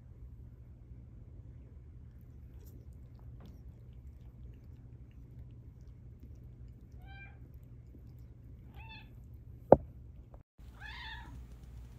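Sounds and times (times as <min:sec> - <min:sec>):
cat meowing: 0:07.0 - 0:07.4, 0:08.7 - 0:09.2, 0:10.8 - 0:11.4.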